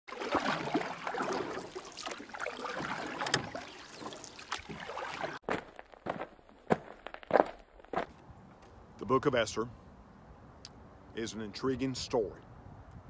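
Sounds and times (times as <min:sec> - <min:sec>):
water lapping and splashing: 0:00.1 - 0:05.6.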